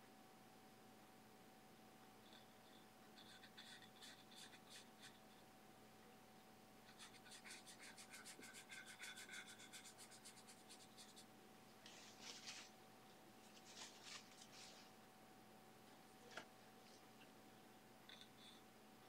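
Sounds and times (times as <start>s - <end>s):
brush scratching on panel: 3.2s - 5.3s, 6.9s - 11.3s.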